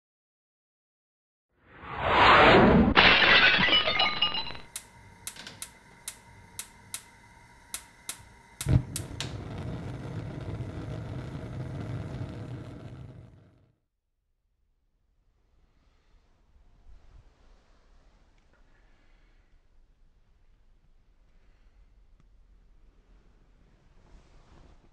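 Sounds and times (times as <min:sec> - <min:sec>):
loud crash with ringing clinks: 0:03.0 - 0:04.7
steady low rumble: 0:04.7 - 0:13.6
sharp clicks: 0:07.7 - 0:09.3.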